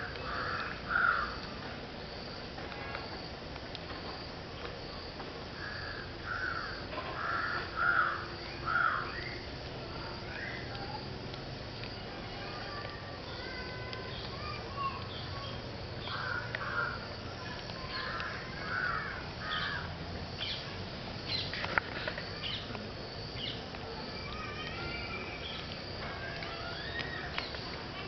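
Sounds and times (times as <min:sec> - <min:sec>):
birds chirping: 0:11.9 - 0:27.8.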